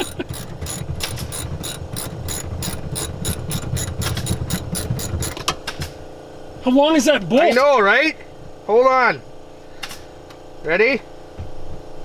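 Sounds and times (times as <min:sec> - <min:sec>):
ratchet wrench clicking: 0:00.0 - 0:05.6.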